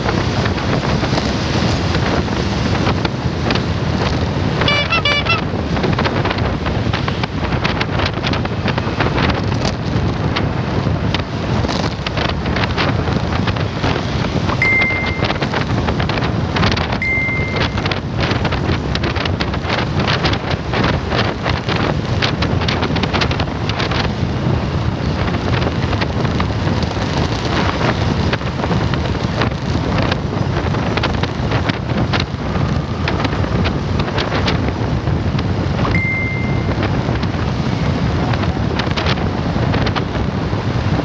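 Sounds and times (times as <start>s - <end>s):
motorcycle tricycle running: 0.0s - 41.0s
wind buffeting microphone: 0.0s - 41.0s
short high beep: 4.6s - 5.4s, 14.6s - 15.6s, 17.0s - 17.9s, 35.9s - 36.8s.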